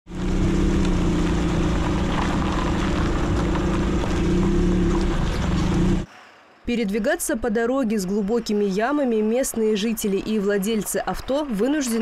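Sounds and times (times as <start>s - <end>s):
car engine humming: 0.1s - 6.1s
tyres crackling over grit: 0.8s - 6.1s.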